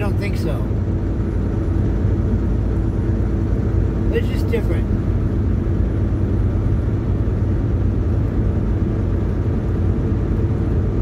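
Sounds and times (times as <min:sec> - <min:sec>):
road noise: 0:00.0 - 0:11.0
truck diesel engine droning: 0:00.0 - 0:11.0.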